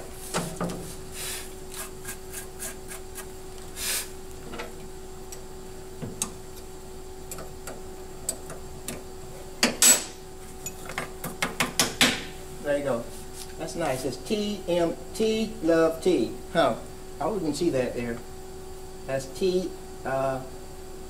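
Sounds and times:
faint machine hum: 0:00.0 - 0:21.0.

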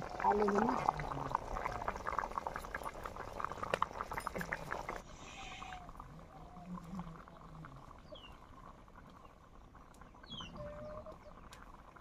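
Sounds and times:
curry bubbling in a wok: 0:00.0 - 0:12.0
faint animal calls: 0:05.1 - 0:07.2, 0:10.3 - 0:11.4.

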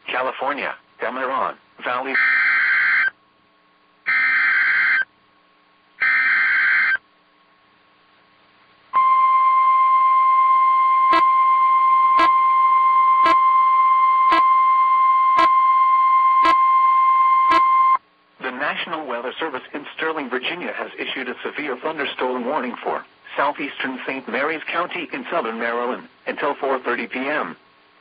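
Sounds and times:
steady warning alarm tone: 0:02.2 - 0:03.1, 0:04.1 - 0:05.1, 0:06.0 - 0:07.0, 0:09.0 - 0:18.0.

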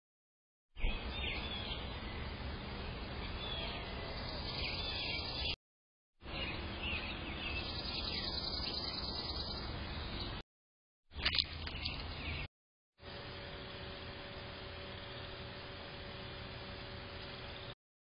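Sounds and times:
birds chirping: 0:00.8 - 0:05.6, 0:06.2 - 0:10.4, 0:11.2 - 0:12.5
outdoor background noise: 0:00.8 - 0:05.6, 0:06.2 - 0:10.4, 0:11.2 - 0:17.8.

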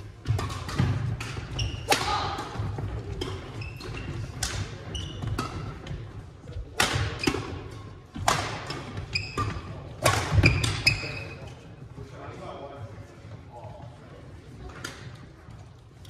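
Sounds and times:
sneakers squeaking: 0:00.1 - 0:06.3, 0:07.0 - 0:11.8
rackets striking shuttlecock: 0:00.2 - 0:06.0, 0:06.7 - 0:11.0.

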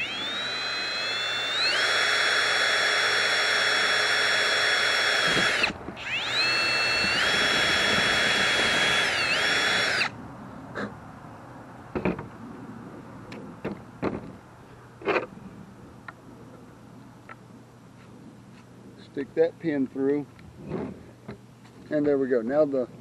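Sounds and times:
cordless drill boring metal: 0:00.0 - 0:10.1.

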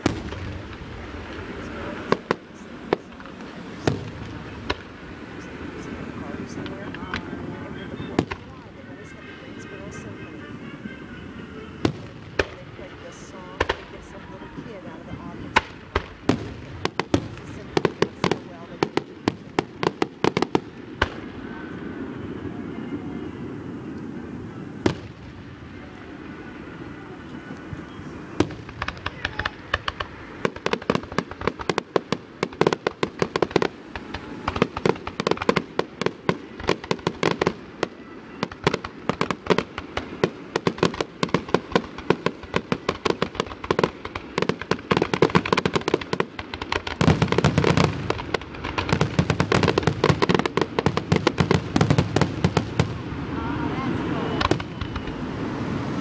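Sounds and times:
firework bang: 0:00.0 - 0:08.6, 0:15.2 - 0:21.7, 0:24.8 - 0:25.7, 0:28.4 - 0:56.0
fireworks barrage and crackling: 0:00.0 - 0:56.0.

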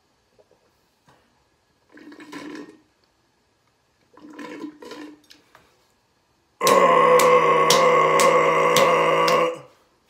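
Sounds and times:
slurping through a straw: 0:01.9 - 0:02.9, 0:04.1 - 0:05.2.

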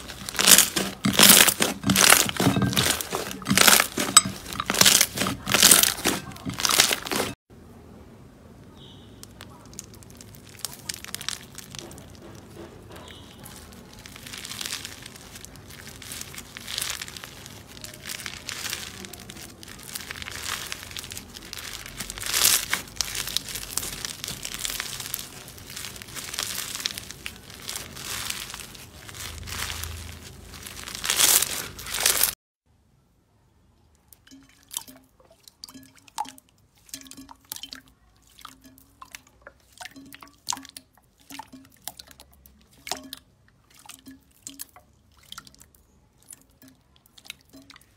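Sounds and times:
floam crackling and crunching: 0:00.0 - 0:07.4, 0:09.1 - 0:32.4
wet slime squishes and pops: 0:00.0 - 0:07.4, 0:09.1 - 0:32.4.

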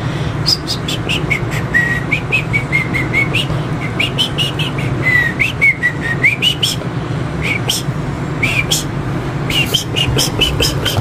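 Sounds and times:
small dog whimpering: 0:09.6 - 0:11.0.

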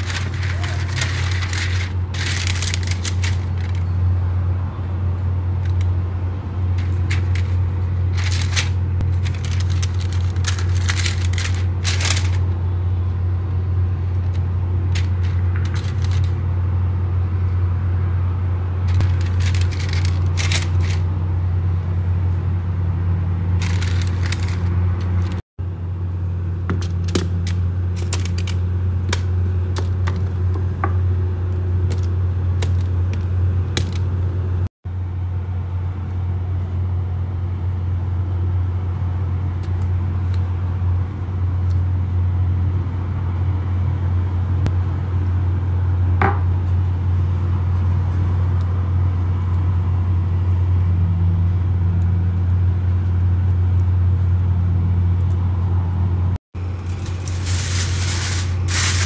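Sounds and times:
baking paper crinkling: 0:00.0 - 0:03.9, 0:06.6 - 0:12.6, 0:14.2 - 0:16.4, 0:18.9 - 0:21.1, 0:23.5 - 0:25.4, 0:26.8 - 0:30.5, 0:56.6 - 0:59.0
low machine hum: 0:00.0 - 0:58.8.

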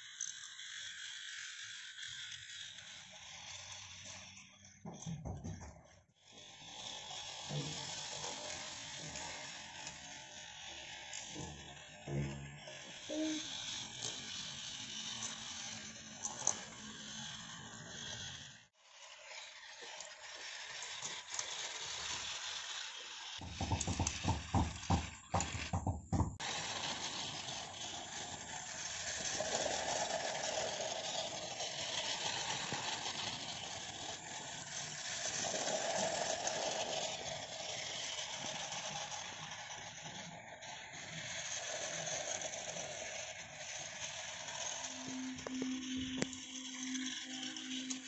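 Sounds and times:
toy train motor whirring: 0:00.0 - 0:48.0
wheels rattling on rails: 0:20.0 - 0:48.0
rapid loud clattering knocks: 0:23.4 - 0:26.4.

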